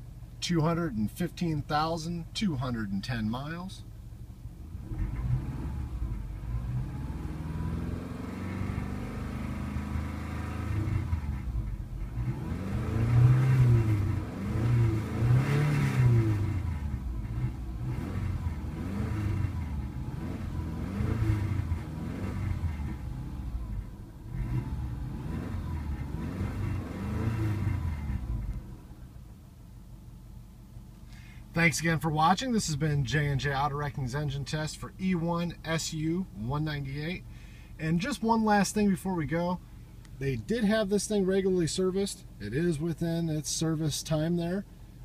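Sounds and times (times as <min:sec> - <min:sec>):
car engine revving: 0:04.6 - 0:29.3.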